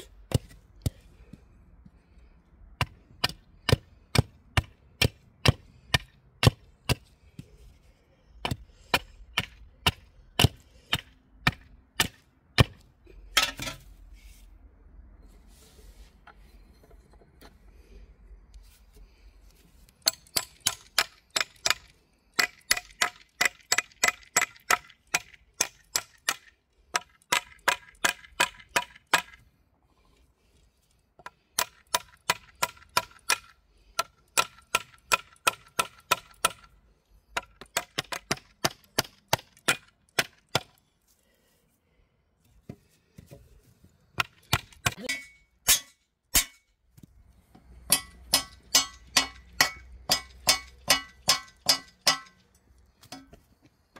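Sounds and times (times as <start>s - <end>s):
hammer tapping metal blade: 47.8s - 52.4s.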